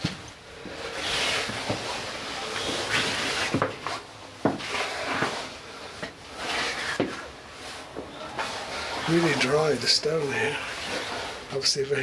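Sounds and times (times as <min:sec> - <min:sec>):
footsteps on stone stairs: 0:00.0 - 0:00.8
rustling: 0:00.0 - 0:12.0.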